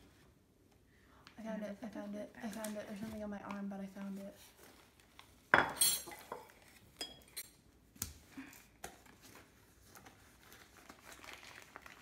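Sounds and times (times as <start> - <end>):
objects clinking on countertop: 5.5 - 7.5.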